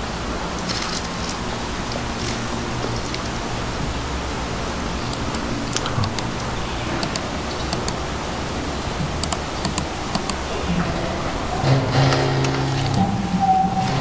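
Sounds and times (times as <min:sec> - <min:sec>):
background hiss and hum: 0:00.0 - 0:14.0
computer mouse clicking: 0:05.1 - 0:08.0, 0:09.0 - 0:10.4.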